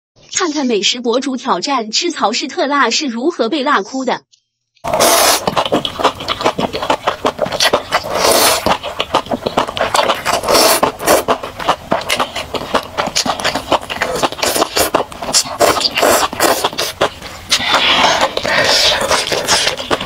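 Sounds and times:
mouth smacking clicks: 0:04.8 - 0:20.0
noodles being slurped: 0:04.8 - 0:20.0.

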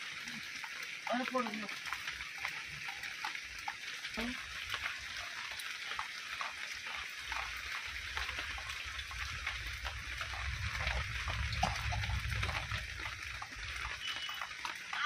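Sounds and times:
close drips ticking: 0:00.0 - 0:15.0
heavy rain falling: 0:00.0 - 0:15.0
low rumble: 0:09.0 - 0:14.0.

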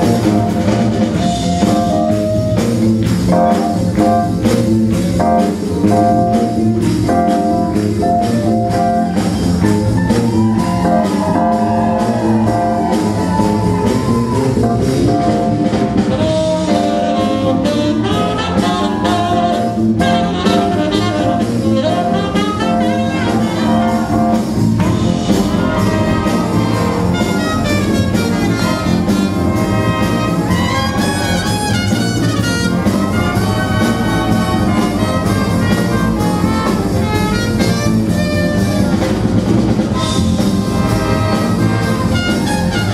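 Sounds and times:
big band playing swing jazz: 0:00.0 - 0:42.9
brass section: 0:10.4 - 0:42.9.

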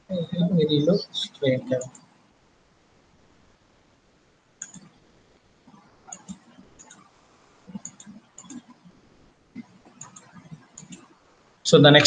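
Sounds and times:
computer mouse clicking: 0:01.8 - 0:02.2, 0:04.6 - 0:05.0, 0:05.7 - 0:09.0, 0:09.6 - 0:11.2.

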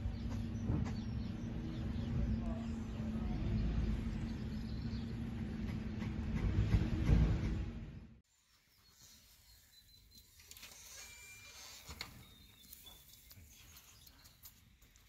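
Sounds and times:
bird chirps: 0:00.0 - 0:05.8, 0:08.3 - 0:14.8
low rumble: 0:00.0 - 0:08.2.

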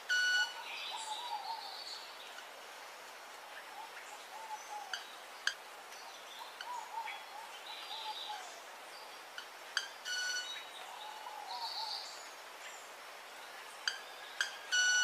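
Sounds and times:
wavering bird calls: 0:00.0 - 0:02.4, 0:03.4 - 0:05.6, 0:06.4 - 0:08.7, 0:09.3 - 0:12.2, 0:13.6 - 0:15.0.

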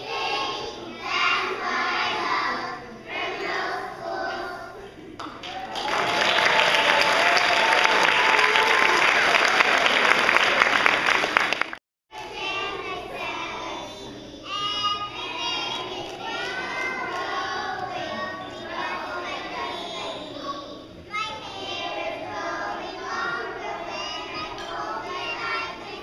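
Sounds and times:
children singing together: 0:00.0 - 0:04.9, 0:12.2 - 0:26.0
audience applauding: 0:05.2 - 0:11.8.

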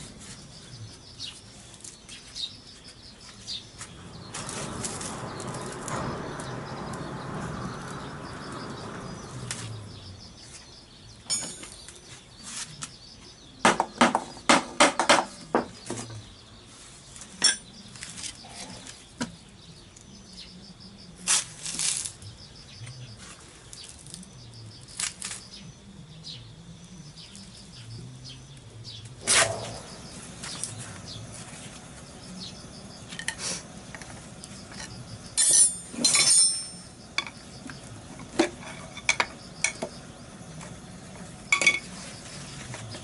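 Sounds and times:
metal tools clinking on engine parts: 0:11.2 - 0:11.9, 0:17.4 - 0:17.7, 0:33.1 - 0:37.4, 0:38.2 - 0:39.9, 0:41.5 - 0:42.0.

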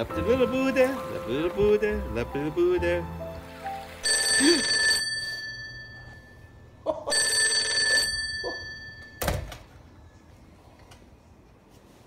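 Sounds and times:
telephone bell ringing: 0:04.0 - 0:09.3.

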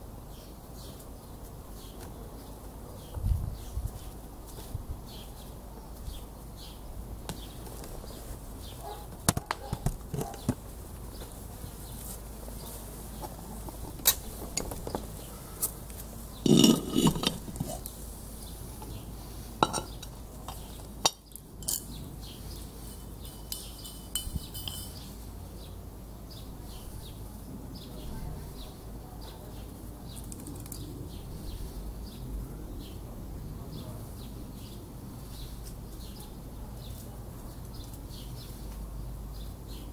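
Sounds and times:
metal pot lid clinking: 0:16.5 - 0:17.6, 0:23.3 - 0:25.0.

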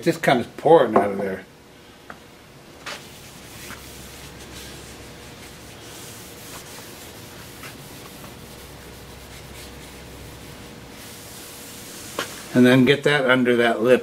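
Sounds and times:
paper towel rubbing on metal: 0:02.8 - 0:13.0.

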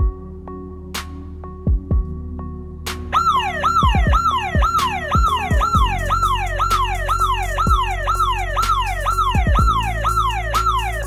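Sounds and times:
music with deep sliding bass: 0:00.0 - 0:11.0
security alarm siren sweeping: 0:03.1 - 0:11.0.

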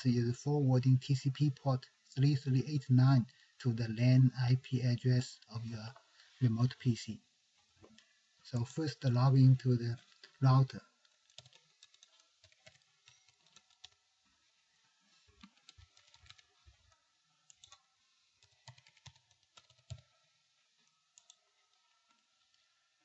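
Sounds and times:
computer keyboard typing: 0:11.2 - 0:14.0, 0:15.4 - 0:16.5, 0:17.5 - 0:17.8, 0:18.4 - 0:20.1, 0:21.2 - 0:21.4.

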